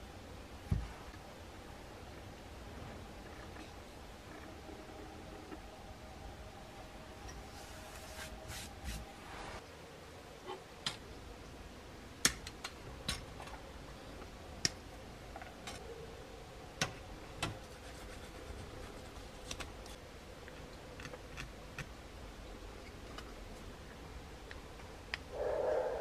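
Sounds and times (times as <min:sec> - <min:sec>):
plastic parts clicking and snipping: 0:19.4 - 0:22.0.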